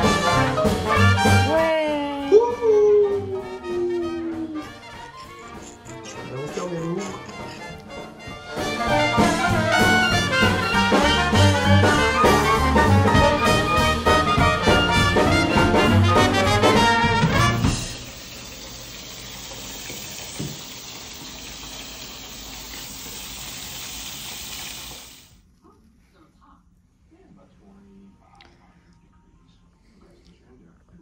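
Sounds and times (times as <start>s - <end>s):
music: 0.0s - 18.1s.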